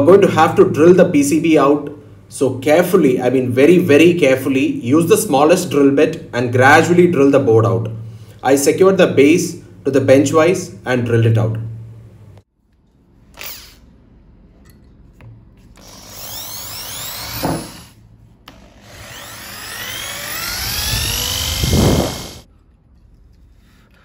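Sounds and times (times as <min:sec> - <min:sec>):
electric drill boring: 0:13.3 - 0:13.9, 0:15.8 - 0:22.5.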